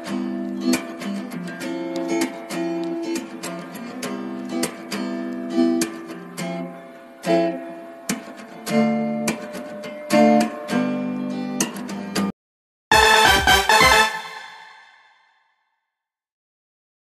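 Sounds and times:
acoustic guitar strumming chords: 0:12.9 - 0:15.1.

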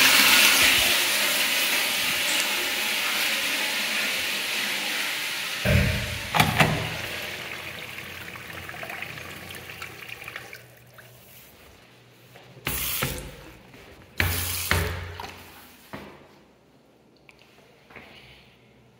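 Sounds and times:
water rushing through flush valve: 0:00.0 - 0:11.3.

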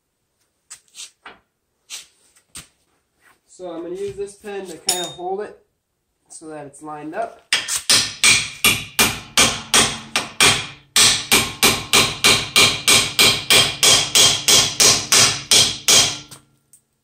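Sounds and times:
hammer striking metal pin: 0:04.9 - 0:05.2, 0:07.5 - 0:16.4.

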